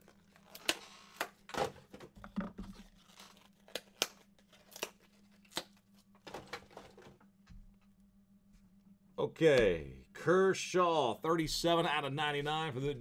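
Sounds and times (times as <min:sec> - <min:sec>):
wrapper tearing and crinkling: 0:00.0 - 0:01.4, 0:02.7 - 0:06.8.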